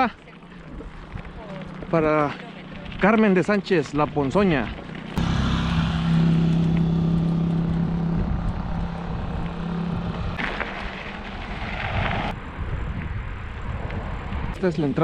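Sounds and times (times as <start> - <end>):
wind and road noise: 0.0 - 15.0
motorcycle engine humming: 5.0 - 10.4.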